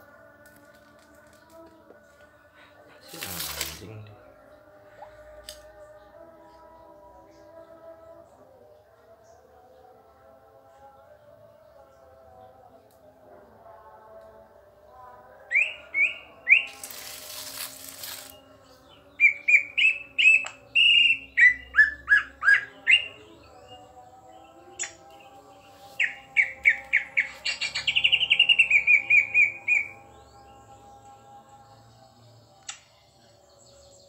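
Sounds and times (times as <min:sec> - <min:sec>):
bird singing chirps and whistles: 0:15.5 - 0:18.4, 0:19.1 - 0:23.8, 0:26.0 - 0:30.1.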